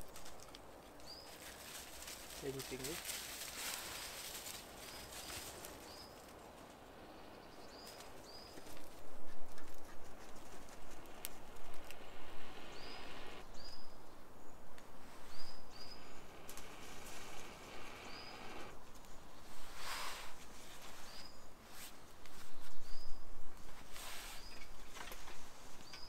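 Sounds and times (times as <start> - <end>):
small bird chirping: 1.0 - 1.5, 4.7 - 19.2, 25.8 - 26.0.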